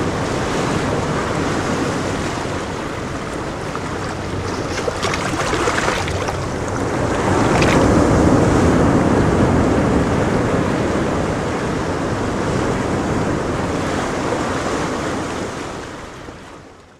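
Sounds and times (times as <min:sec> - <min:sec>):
small waves washing on pebbles: 0:00.8 - 0:08.2.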